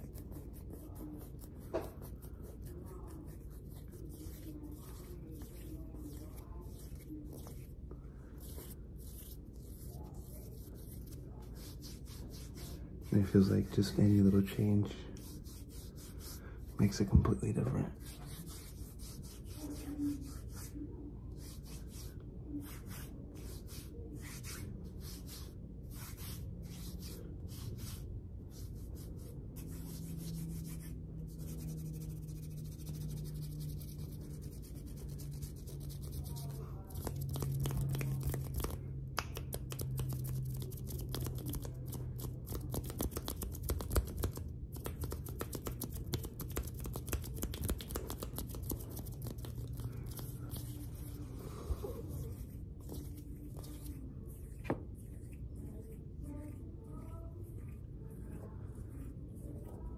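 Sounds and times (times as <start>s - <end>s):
hands rubbing together: 21.4s - 54.0s.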